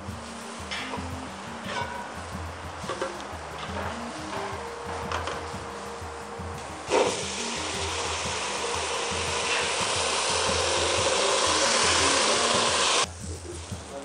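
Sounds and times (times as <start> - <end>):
water poured into hot oil sizzling: 6.9 - 13.1.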